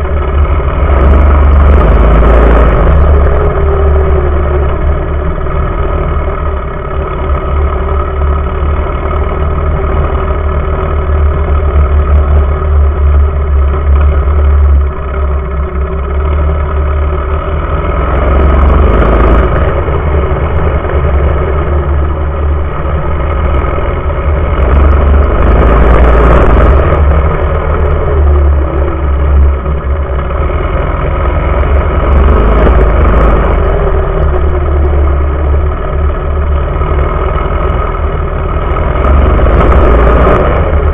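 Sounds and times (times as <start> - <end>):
mini bike engine revving: 0.0 - 40.9.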